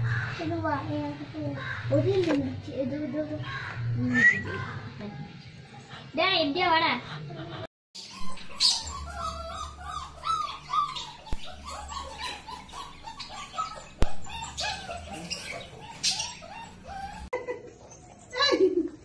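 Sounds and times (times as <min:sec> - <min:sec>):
puppies whining: 0:08.0 - 0:17.3.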